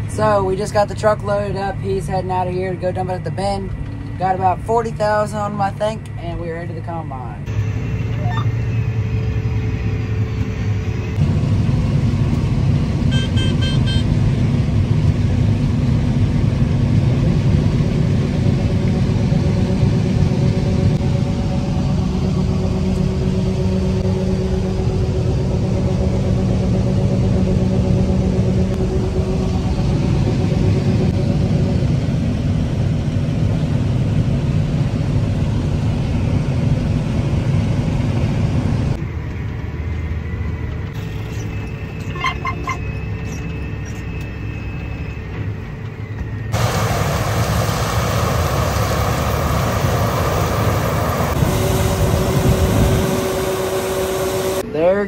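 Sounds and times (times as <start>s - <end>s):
combine harvester rumble: 0.0s - 55.0s
tractor cab hum: 38.9s - 55.0s.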